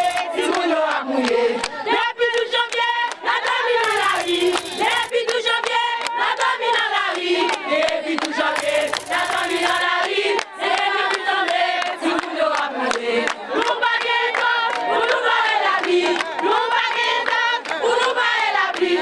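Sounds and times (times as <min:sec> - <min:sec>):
crowd of women singing: 0:00.0 - 0:19.0.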